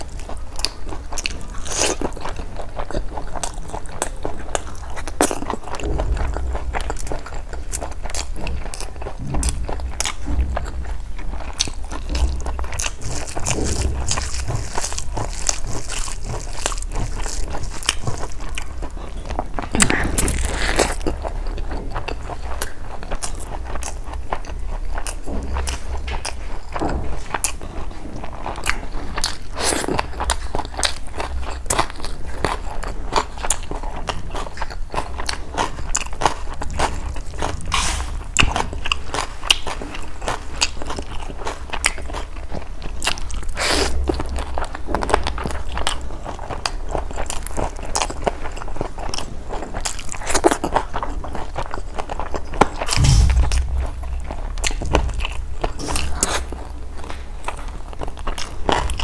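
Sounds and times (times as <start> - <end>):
steady low hum: 0.0 - 26.6, 52.8 - 59.0
close chewing with wet clicks: 0.0 - 53.0.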